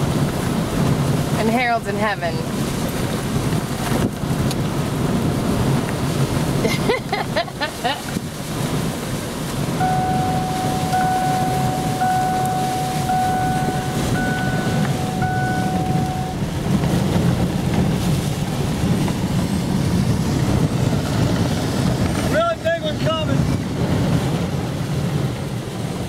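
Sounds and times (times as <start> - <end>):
wind buffeting a truck: 0.0 - 26.0
repeating electronic tone: 9.8 - 16.4.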